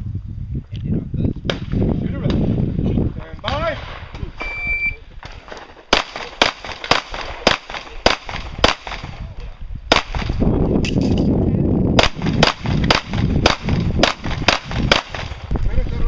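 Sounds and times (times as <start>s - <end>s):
handgun shots: 5.9s - 9.1s.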